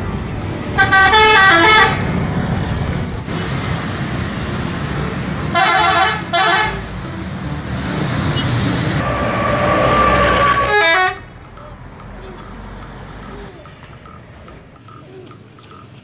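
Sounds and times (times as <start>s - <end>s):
bus engine and road noise: 0.0s - 16.0s
multi-tone air horn blasts: 0.8s - 2.0s, 5.5s - 6.9s, 9.0s - 11.4s.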